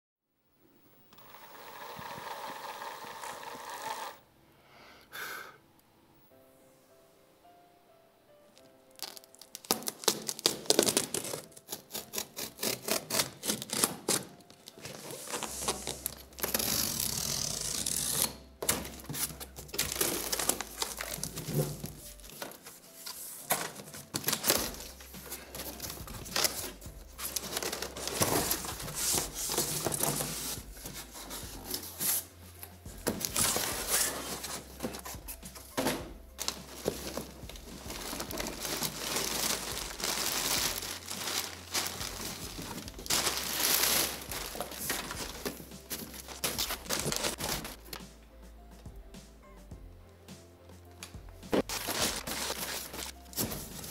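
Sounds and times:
packing material crinkling: 0:08.6 - 0:32.3, 0:36.4 - 0:48.0, 0:51.6 - 0:53.9
tape tearing: 0:08.9 - 0:22.7, 0:23.4 - 0:32.3, 0:33.1 - 0:48.1, 0:51.5 - 0:53.9
box cutter slitting packing tape: 0:09.6 - 0:19.2
cardboard flaps rustling: 0:33.0 - 0:48.0, 0:51.5 - 0:53.9.

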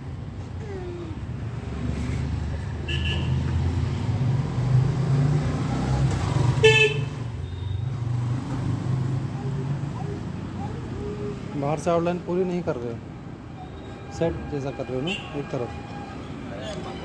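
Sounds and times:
traffic engine rumble: 0:00.0 - 0:17.0
vehicle horn toot: 0:02.9 - 0:03.4, 0:06.6 - 0:07.8.

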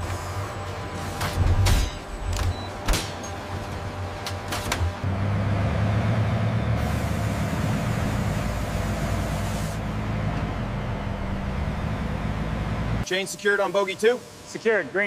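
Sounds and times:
tank engine rumbling: 0:04.9 - 0:13.0
hiss: 0:06.8 - 0:09.8.

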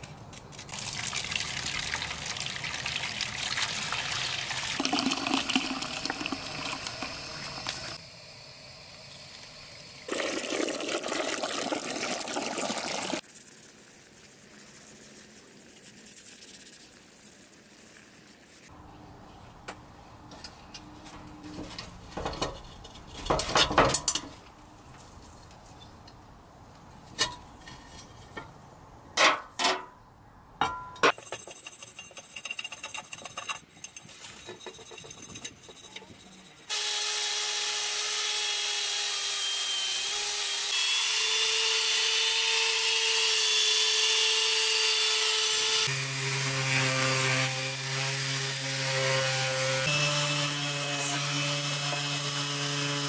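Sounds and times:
wire brush scrubbing metal: 0:13.2 - 0:18.7, 0:31.1 - 0:36.7
abrasive wheel grinding metal: 0:31.1 - 0:36.7.

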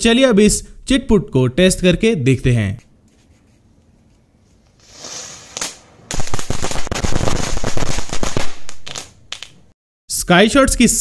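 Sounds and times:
burning fuse hiss: 0:04.7 - 0:06.5
firecracker string crackling pops: 0:05.0 - 0:09.6.

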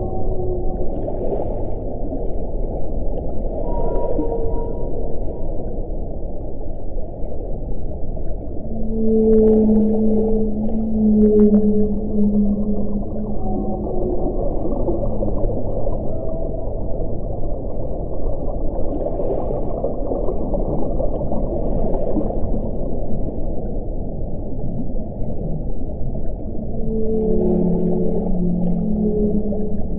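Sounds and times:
whale moaning: 0:00.0 - 0:01.3, 0:03.5 - 0:05.8, 0:08.5 - 0:17.3, 0:26.3 - 0:29.9
low underwater rumble: 0:00.0 - 0:29.9.

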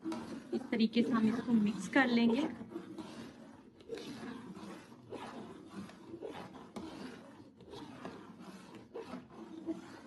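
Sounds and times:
metal spoon scraping pot: 0:00.0 - 0:10.0.

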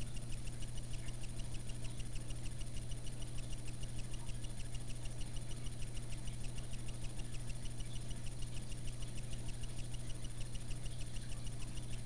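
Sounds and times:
aquarium pump humming and ticking: 0:00.0 - 0:12.0.

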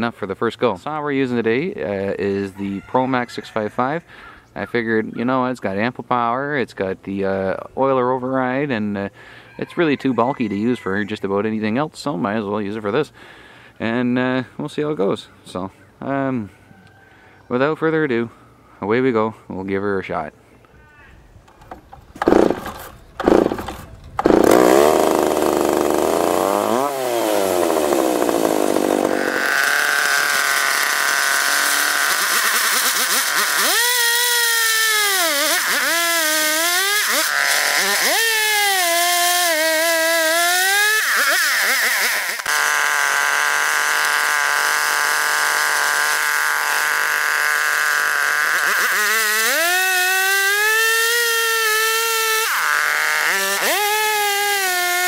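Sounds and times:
chainsaw cutting log: 0:21.5 - 0:55.0
chainsaw pull-started and revving: 0:21.6 - 0:55.0.

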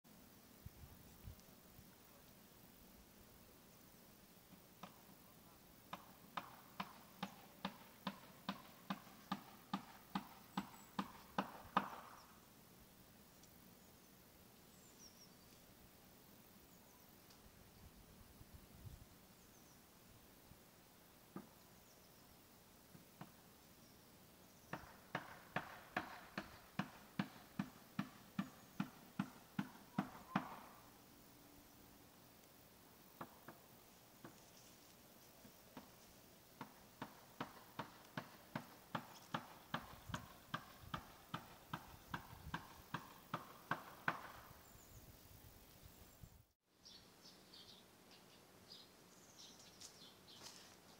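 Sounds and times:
sharp knocks: 0:24.8 - 0:30.7, 0:36.6 - 0:44.4.

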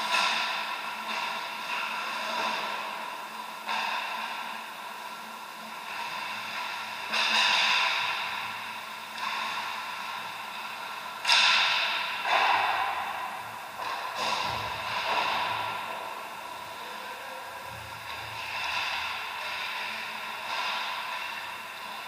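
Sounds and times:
steady background hum: 0:00.0 - 0:22.0
skates and sticks scraping ice: 0:13.8 - 0:16.2, 0:17.8 - 0:22.0.

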